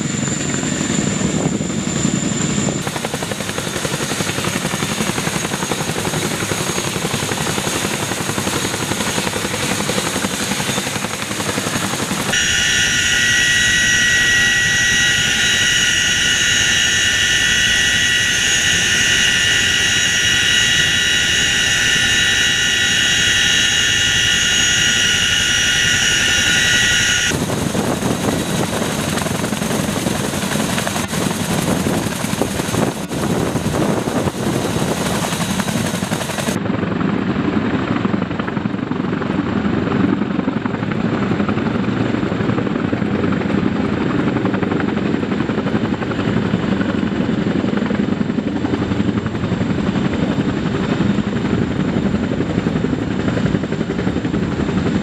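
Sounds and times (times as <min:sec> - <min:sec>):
helicopter rotor and turbine noise: 0:00.0 - 0:55.0
high-pitched transmission whine: 0:12.2 - 0:27.4.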